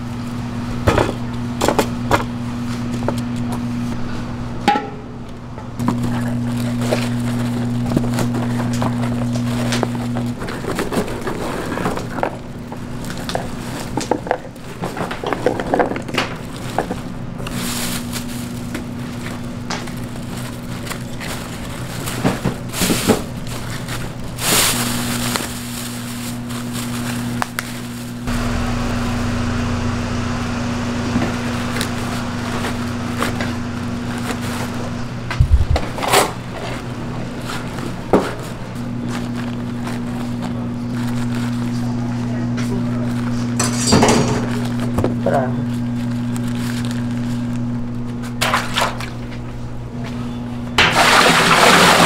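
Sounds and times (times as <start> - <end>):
low hum: 23.4 - 50.8
kitchen scraping and knocks: 43.6 - 44.7.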